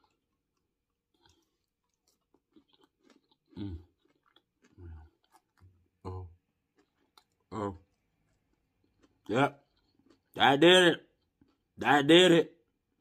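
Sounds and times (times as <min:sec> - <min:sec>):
person chewing with lip smacking: 0:00.0 - 0:10.4.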